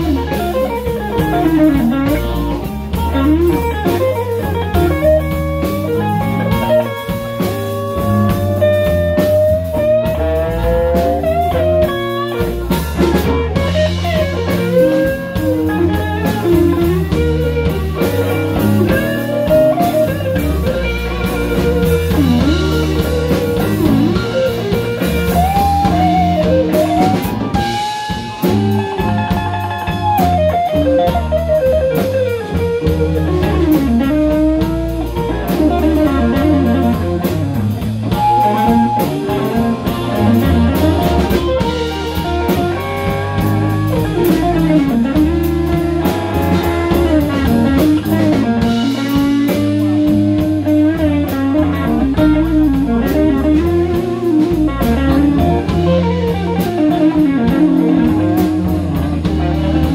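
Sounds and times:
electric blues band playing: 0.0 - 59.9.

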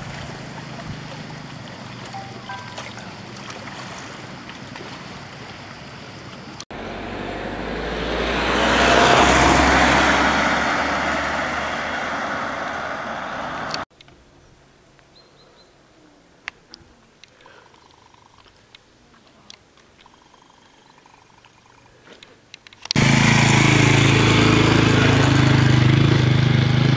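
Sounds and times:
waves: 0.0 - 6.6
wind: 0.0 - 26.9
car passing: 6.7 - 13.9.

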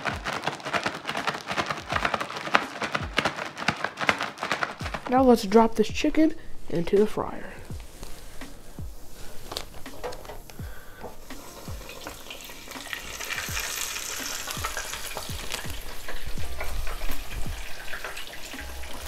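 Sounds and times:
chicken sizzling in deep fryer oil: 11.4 - 19.0.

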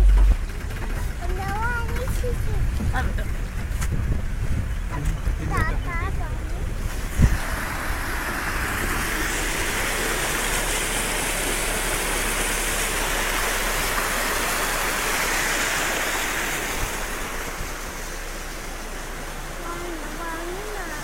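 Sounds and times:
stream rushing over stones: 1.2 - 21.0.

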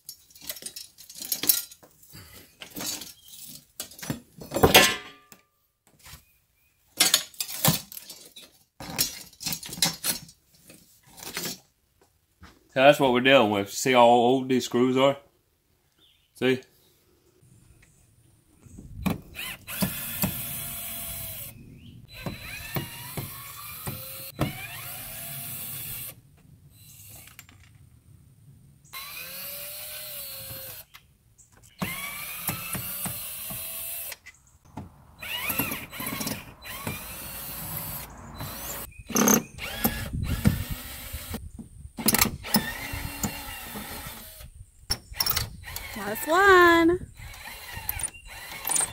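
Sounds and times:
cordless drill motor whirring: 19.1 - 26.2, 29.0 - 30.9, 31.8 - 34.2, 35.2 - 41.4, 42.0 - 44.6, 45.2 - 46.4, 47.1 - 48.9.

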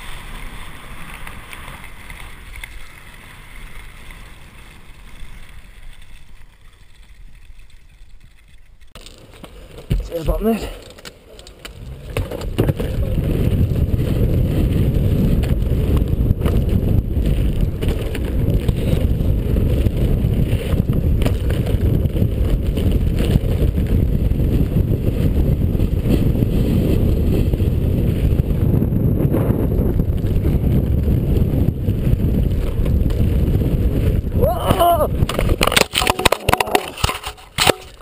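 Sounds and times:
board wheels rumbling on dirt: 0.0 - 38.0
wind on microphone: 11.8 - 37.4.

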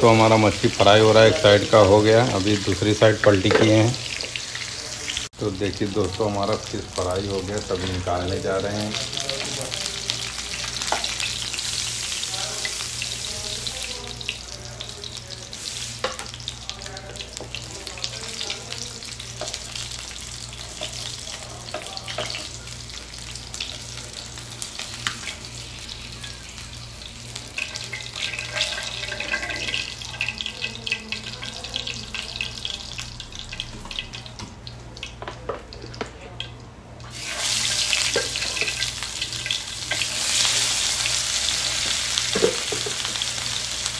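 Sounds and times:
oil sizzling in a frying pan: 0.0 - 43.9
metal utensils scraping a pan: 27.5 - 29.9.

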